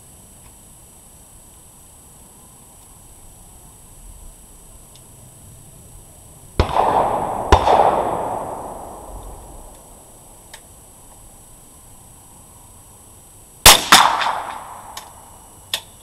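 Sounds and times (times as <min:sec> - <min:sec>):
rifle shots with echo: 0:06.6 - 0:10.2, 0:13.6 - 0:15.1.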